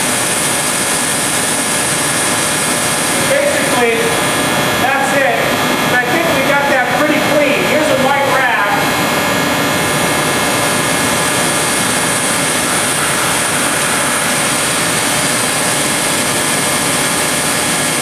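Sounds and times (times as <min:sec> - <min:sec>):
gas hissing through a line: 0:00.0 - 0:04.9, 0:08.8 - 0:18.0.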